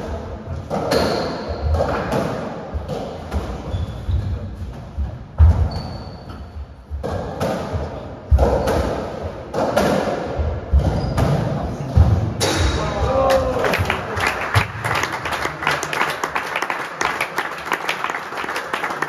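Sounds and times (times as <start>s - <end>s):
racquet hitting ball: 0.0s - 13.0s.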